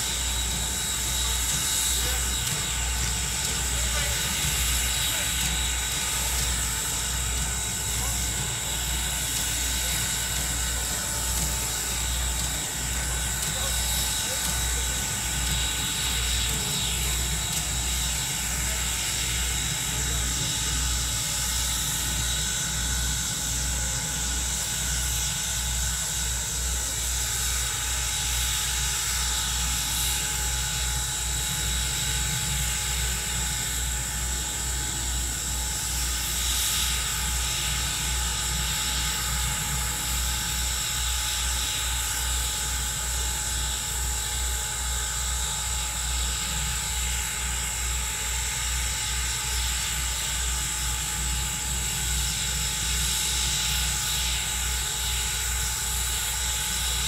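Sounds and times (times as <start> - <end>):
rhythmic low pulsing: 0.0 - 26.6
steam locomotive hissing: 0.0 - 57.0.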